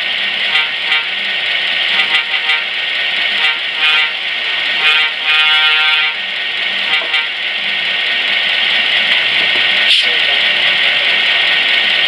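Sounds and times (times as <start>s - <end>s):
diesel engine running: 0.0s - 12.0s
diesel air horn: 0.4s - 1.3s, 1.9s - 6.2s, 6.8s - 7.4s.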